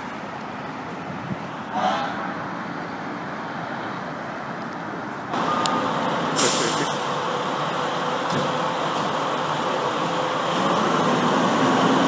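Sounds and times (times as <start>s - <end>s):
fire truck running: 0.0s - 12.0s
street traffic noise: 0.0s - 12.0s
air brakes hissing: 6.4s - 7.0s.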